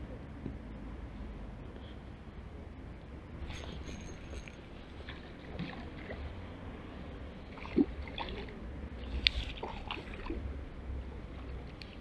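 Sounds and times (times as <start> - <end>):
fishing reel clicking: 3.4 - 4.6
rod and reel knocks: 3.4 - 5.2.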